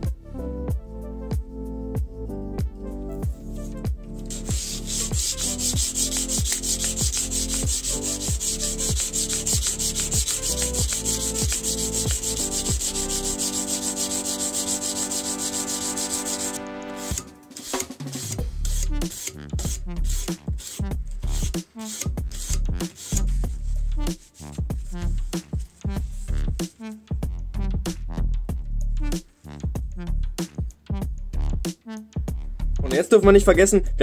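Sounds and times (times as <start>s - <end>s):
electronic music with kick drum: 0.0s - 17.3s, 22.2s - 33.0s
sandpaper rasping on knife blade: 4.2s - 26.4s.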